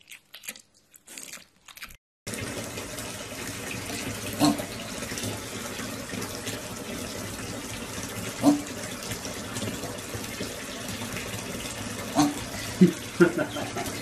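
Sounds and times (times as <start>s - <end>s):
water running into bathtub: 2.3s - 14.0s
piglet grunt: 4.4s - 4.7s, 8.4s - 8.7s, 12.1s - 12.8s.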